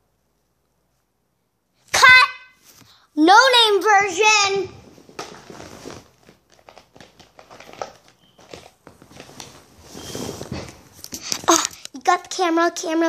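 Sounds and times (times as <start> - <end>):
soft rustling: 4.7 - 11.9
breathy noise: 10.0 - 12.0.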